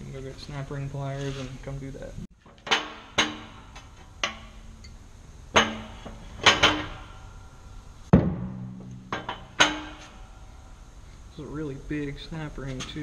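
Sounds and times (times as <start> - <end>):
metal clanks with ringing: 2.4 - 10.8.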